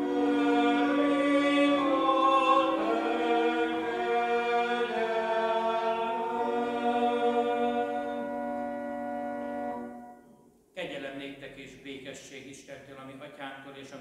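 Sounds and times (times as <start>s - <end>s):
congregation singing a hymn: 0.0s - 10.0s.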